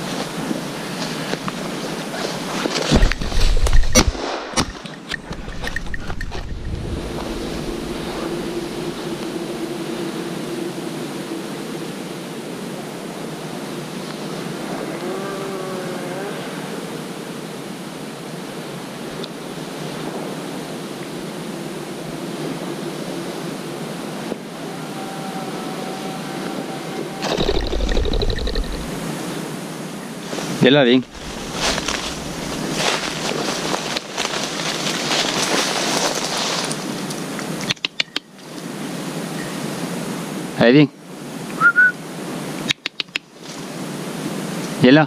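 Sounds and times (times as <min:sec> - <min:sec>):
wind on microphone: 0:00.0 - 0:13.8, 0:25.8 - 0:29.3, 0:30.5 - 0:34.1
swishing through dry grass: 0:05.3 - 0:11.5, 0:30.2 - 0:37.1.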